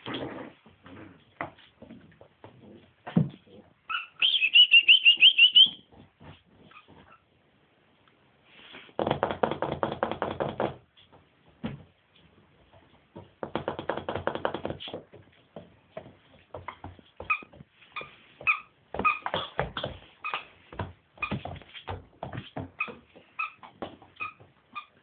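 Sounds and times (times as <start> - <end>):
puppies play-growling: 0.0 - 1.5
puppy yips and squeaks: 3.9 - 5.8.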